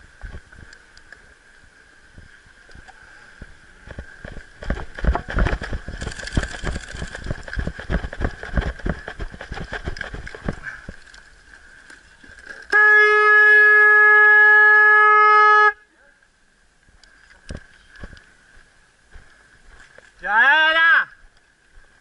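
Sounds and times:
footsteps on grass and dirt: 3.8 - 11.4, 17.4 - 20.2
horn blast: 12.7 - 15.8.

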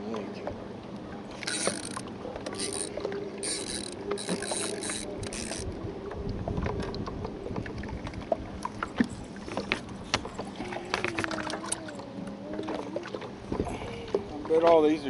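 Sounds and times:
wavering hum: 0.4 - 14.5
reel and tackle clicks: 1.3 - 5.8, 8.6 - 12.0
spinning reel cranking: 1.4 - 5.7.

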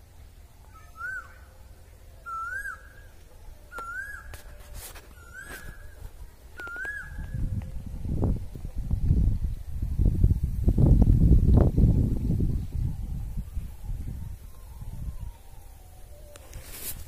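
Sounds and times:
bird whistling call: 0.7 - 1.6, 2.2 - 6.0, 6.6 - 7.4.

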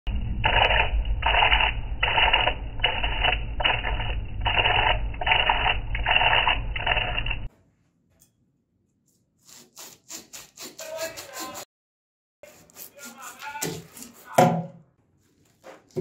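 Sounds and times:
gouge cutting into spinning fruit: 9.5 - 11.7, 12.4 - 14.6.

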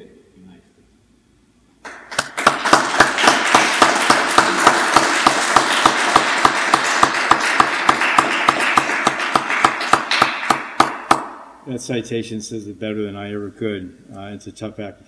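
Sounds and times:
small group applauding: 1.8 - 11.4.

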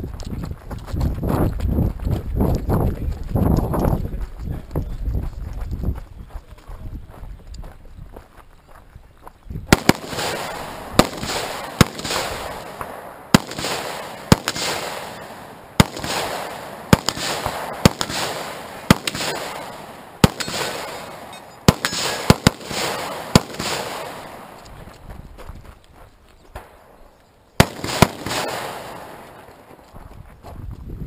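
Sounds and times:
rifle shots echoing: 9.7 - 25.0, 26.6 - 29.9.

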